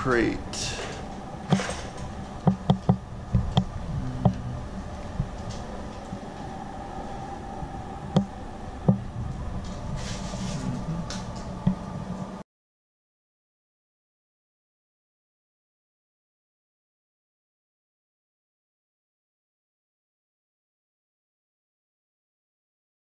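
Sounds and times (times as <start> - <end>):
steady low hum: 0.0 - 12.4
metal wire crate clinking: 0.8 - 2.1.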